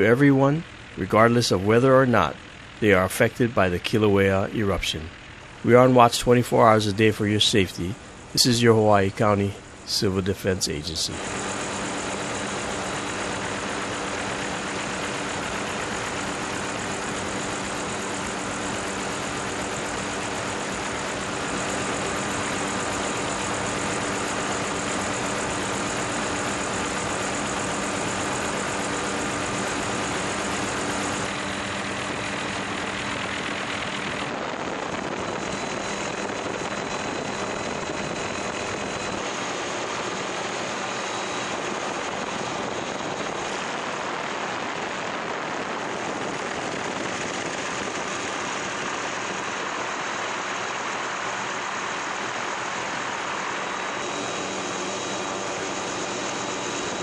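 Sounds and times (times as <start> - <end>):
steady tones: 0.0 - 26.0
helicopter rotor and engine drone: 0.0 - 57.0.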